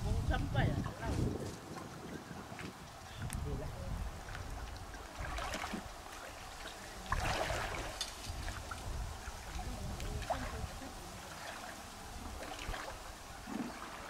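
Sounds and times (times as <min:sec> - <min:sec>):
water splashing around wading legs: 0:04.1 - 0:14.0.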